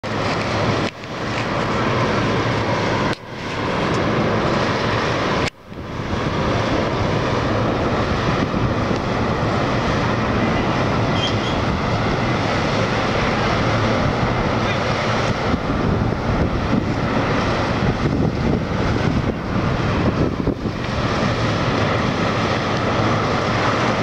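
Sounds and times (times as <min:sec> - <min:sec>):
loud rushing outdoor noise: 0:00.0 - 0:24.0.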